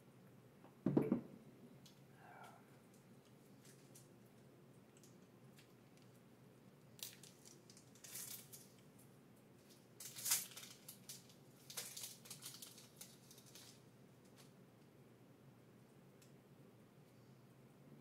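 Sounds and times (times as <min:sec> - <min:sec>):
foil wrapper crinkling and tearing: 0:06.9 - 0:08.9, 0:09.6 - 0:14.5.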